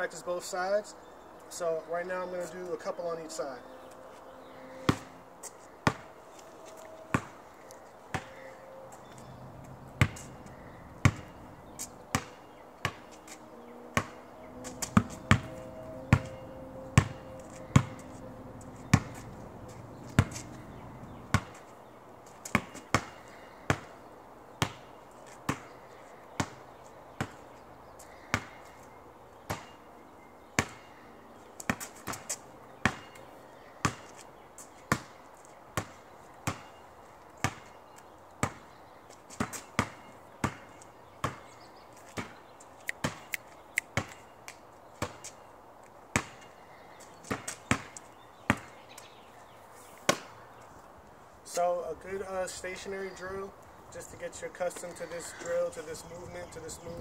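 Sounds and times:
basketball bouncing on asphalt: 4.8s - 6.1s, 7.1s - 7.4s, 8.1s - 28.8s, 29.4s - 29.8s, 30.4s - 31.0s, 31.6s - 35.2s, 35.8s - 36.8s, 37.4s - 44.3s, 45.0s - 45.5s, 46.1s - 49.3s, 50.1s - 50.4s.

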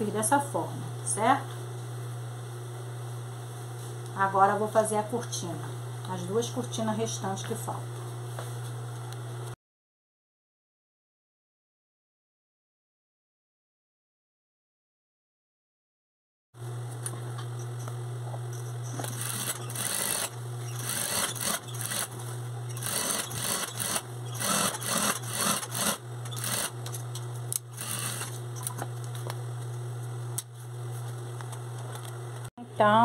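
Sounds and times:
sewing machine stitching: 19.0s - 22.1s, 22.7s - 26.7s, 27.7s - 28.4s.

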